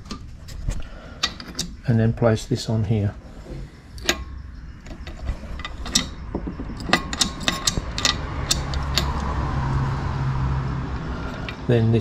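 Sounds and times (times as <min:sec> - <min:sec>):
metal parts clicking: 0:00.0 - 0:01.8, 0:03.9 - 0:09.4.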